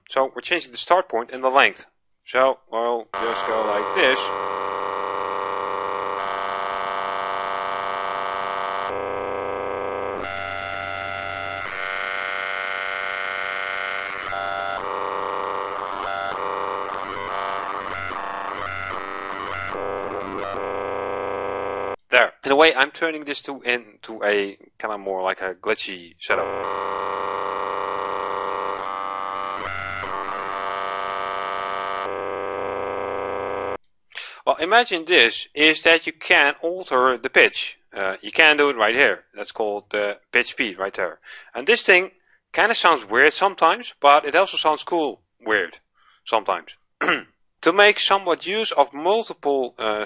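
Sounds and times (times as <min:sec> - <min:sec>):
glitchy pitched synth drone: 0:03.1 - 0:22.0, 0:26.3 - 0:33.8.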